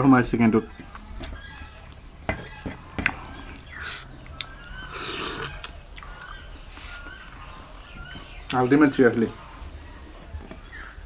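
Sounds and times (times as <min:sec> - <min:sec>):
slurping and chewing: 0:03.0 - 0:07.2.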